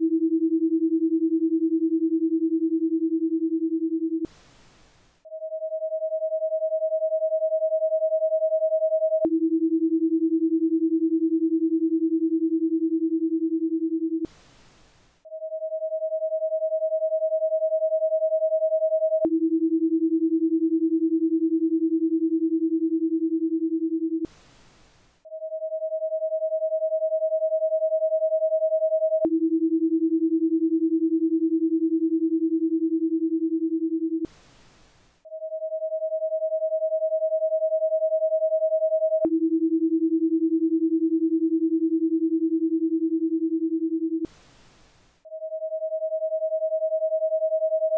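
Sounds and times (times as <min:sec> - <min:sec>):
faint hiss: 0:04.3 - 0:05.2, 0:14.3 - 0:15.2, 0:24.3 - 0:25.2, 0:34.3 - 0:35.2, 0:44.3 - 0:45.2.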